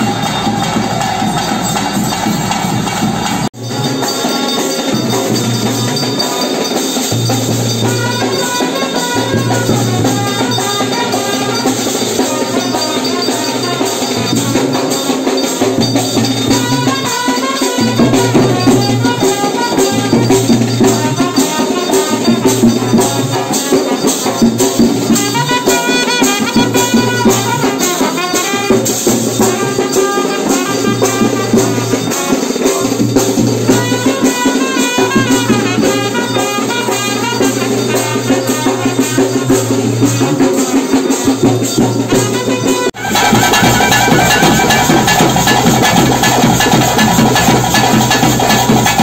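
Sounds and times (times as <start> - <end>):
fast steady drumming: 0.0 - 49.0
jingling rattling percussion: 0.0 - 49.0
bending melody: 42.1 - 48.4.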